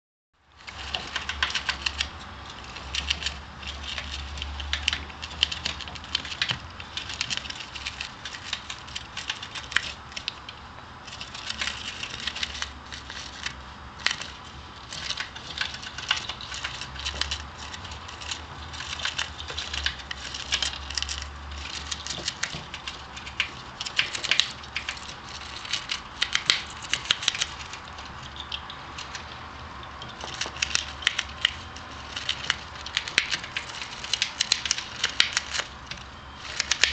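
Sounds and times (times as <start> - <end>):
cardboard being gnawed and torn: 30.1 - 36.9.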